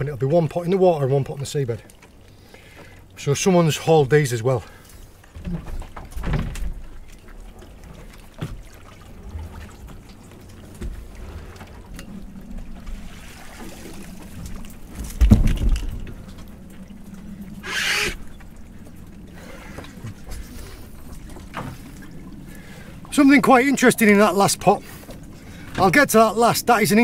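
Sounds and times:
water trickling off pots: 0:06.7 - 0:15.0.

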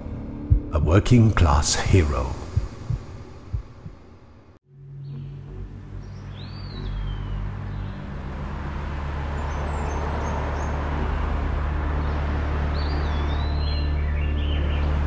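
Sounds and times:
vehicle engine drone: 0:06.9 - 0:15.0.

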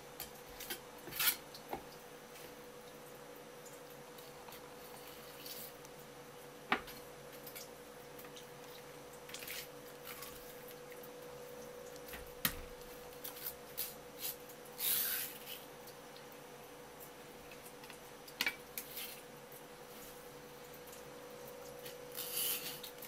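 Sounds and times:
faint steady hum: 0:00.0 - 0:23.0
knife scraping through fish: 0:22.2 - 0:22.9.

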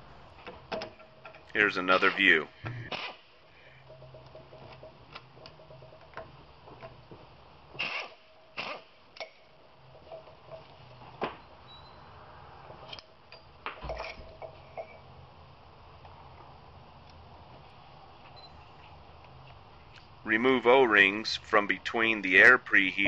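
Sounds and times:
faint steady hum: 0:00.0 - 0:23.0
metal parts clicking and knocking: 0:03.8 - 0:06.4.

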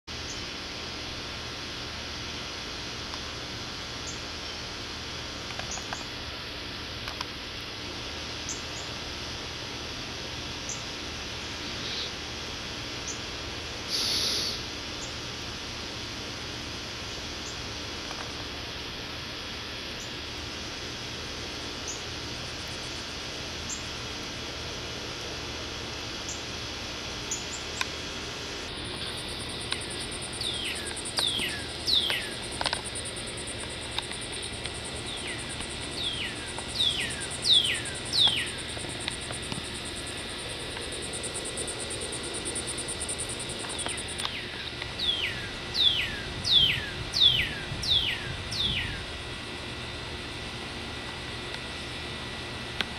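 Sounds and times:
high insect trill: 0:08.1 - 0:15.7, 0:16.4 - 0:50.2
songbird whistling: 0:30.4 - 0:32.4, 0:35.1 - 0:38.6, 0:44.3 - 0:49.0.

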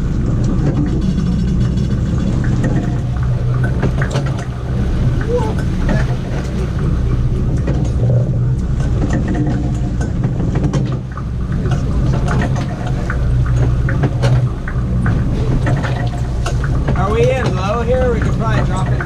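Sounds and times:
boat engine idling: 0:00.0 - 0:19.0
light clicks and knocks: 0:05.6 - 0:19.0.

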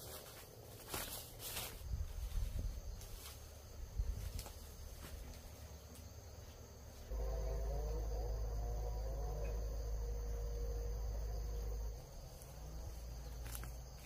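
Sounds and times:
insects chirping: 0:00.0 - 0:14.0
wavering mid-pitched hum: 0:07.1 - 0:13.8.

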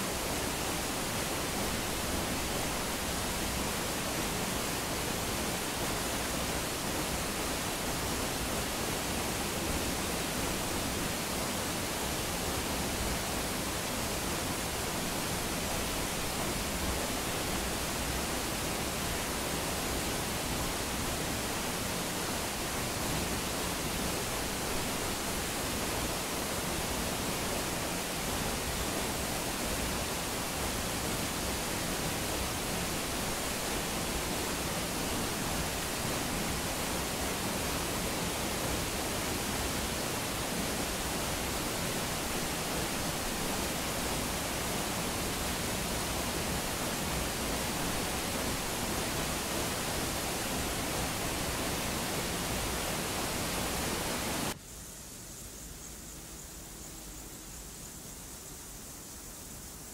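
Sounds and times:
waterfall rushing: 0:00.0 - 0:54.6.

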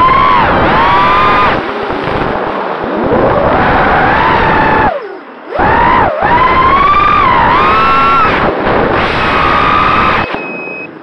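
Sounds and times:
drone motors screaming: 0:00.0 - 0:02.3, 0:03.0 - 0:10.4
rushing propeller noise: 0:00.0 - 0:10.3.

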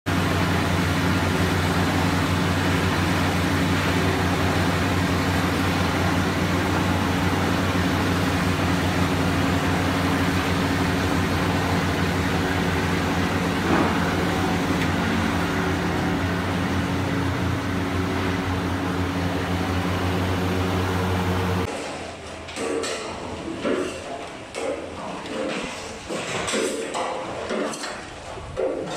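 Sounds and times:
fryer machine hum: 0:00.1 - 0:21.7.

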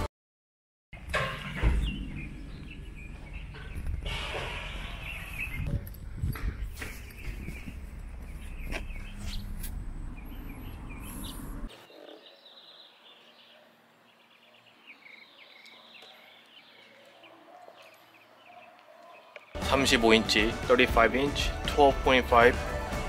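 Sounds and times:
small birds chirping: 0:01.3 - 0:19.6
low rumble: 0:01.5 - 0:11.7.

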